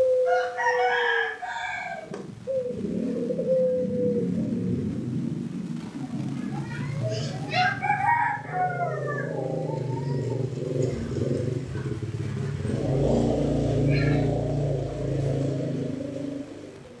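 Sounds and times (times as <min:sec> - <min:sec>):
rooster crowing: 0:00.1 - 0:02.2, 0:07.4 - 0:10.3
engine hum: 0:02.0 - 0:17.0.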